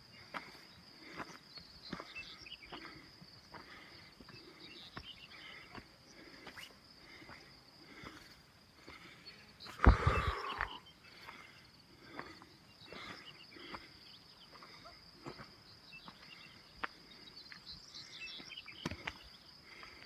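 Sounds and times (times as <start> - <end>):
insects chirring: 0.0 - 20.0
footsteps crunching on stony track: 0.2 - 8.2, 14.6 - 20.0
bird chirps: 0.6 - 3.0, 4.3 - 5.8, 9.2 - 11.3, 12.5 - 19.5.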